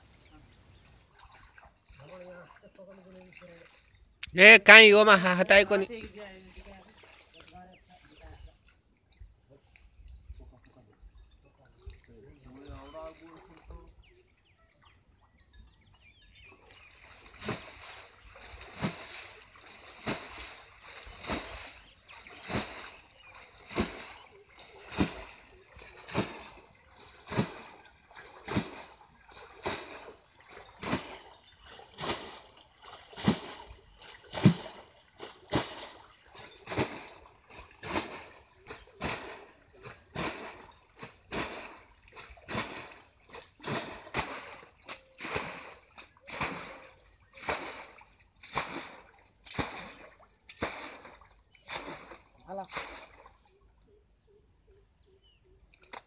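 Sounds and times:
pond water splashing: 0.0s - 56.0s.

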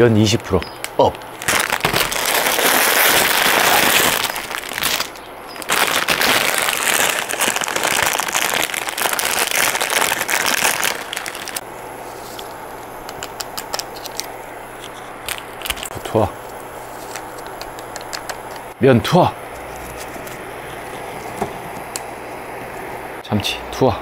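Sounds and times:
plastic packet crinkling: 0.4s - 18.7s.

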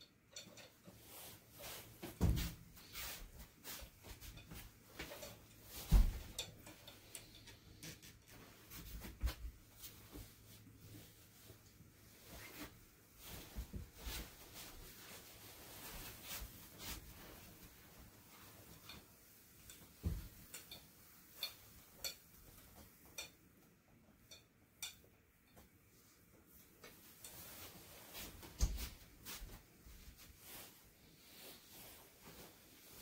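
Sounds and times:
soft footsteps on mats: 1.6s - 6.5s
fabric rustling: 8.2s - 20.4s, 26.5s - 33.0s.

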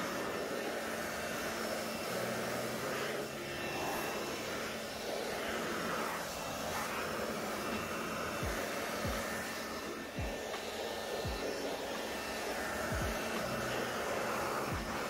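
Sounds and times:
air blower running: 0.0s - 15.0s.

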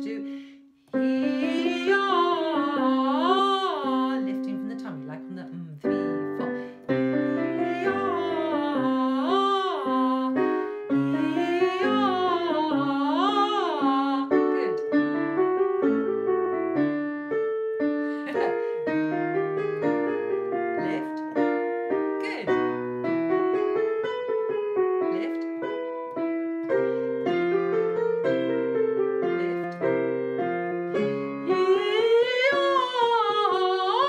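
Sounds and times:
woman singing warm-up phrases: 0.0s - 14.9s, 18.2s - 18.7s, 20.8s - 21.2s, 22.2s - 22.8s, 25.1s - 25.9s, 29.3s - 29.9s, 31.0s - 34.0s
piano playing chords: 0.9s - 34.0s.

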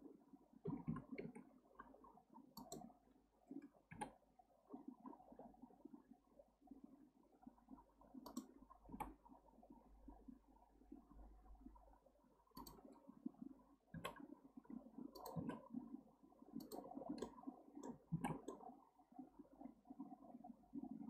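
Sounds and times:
keyboard and mouse clicks: 0.7s - 1.5s, 2.6s - 2.9s, 3.6s - 4.2s, 8.2s - 9.2s, 12.5s - 13.0s, 13.9s - 14.3s, 15.1s - 15.6s, 16.6s - 18.7s.

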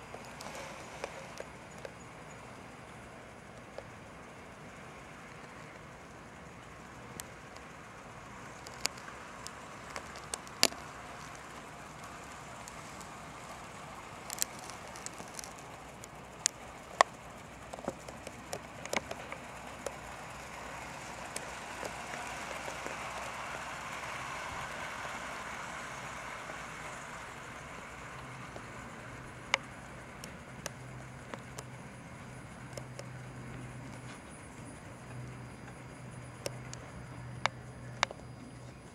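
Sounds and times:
model train whirring: 0.0s - 38.9s
sharp clicks: 7.0s - 24.2s, 29.4s - 38.9s.

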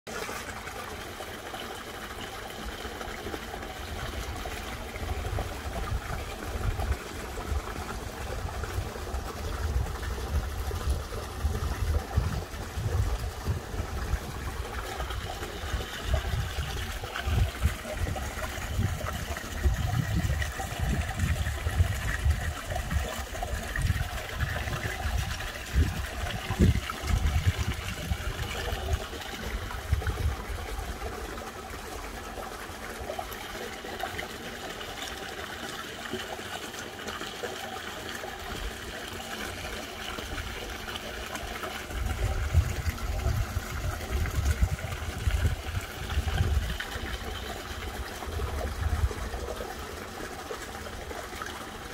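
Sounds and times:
water trickling in a pond: 0.1s - 51.9s.

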